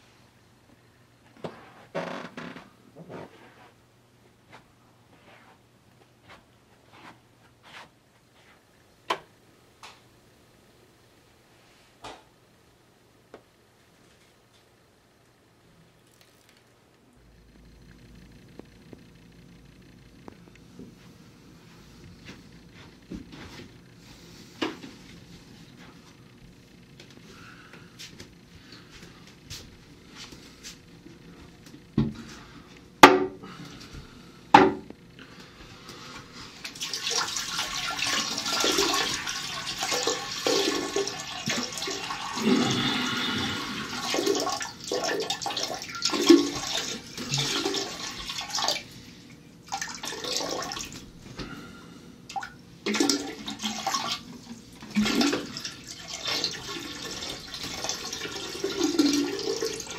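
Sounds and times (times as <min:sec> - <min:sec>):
water running and splashing: 0:36.6 - 0:42.8.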